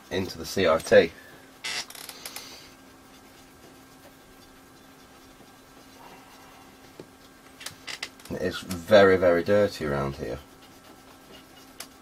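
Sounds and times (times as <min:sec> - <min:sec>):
faint steady hum: 0:00.0 - 0:12.0
cotton bud scrubbing glass: 0:02.1 - 0:07.4, 0:08.6 - 0:12.0.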